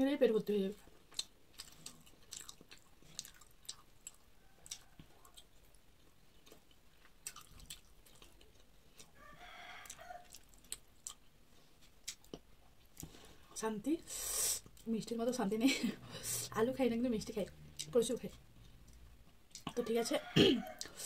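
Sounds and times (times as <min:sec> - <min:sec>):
chewing with wet mouth clicks: 0:01.0 - 0:09.1, 0:09.8 - 0:13.1, 0:17.7 - 0:19.8
distant rooster crowing: 0:04.3 - 0:05.3, 0:09.2 - 0:10.4, 0:19.8 - 0:21.0.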